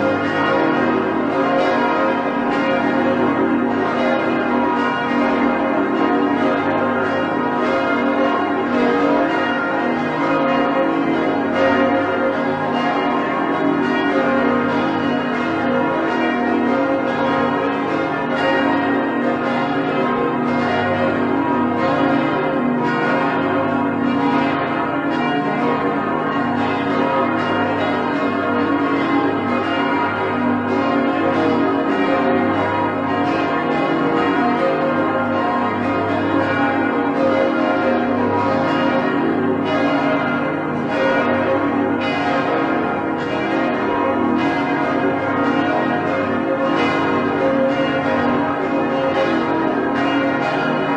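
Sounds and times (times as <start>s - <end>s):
church bells ringing: 0.0s - 50.9s.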